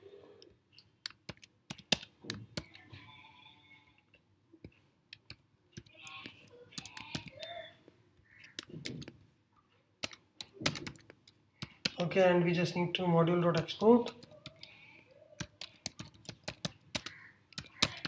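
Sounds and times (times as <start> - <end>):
keyboard keys clicking: 10.0 - 12.1, 15.4 - 18.0.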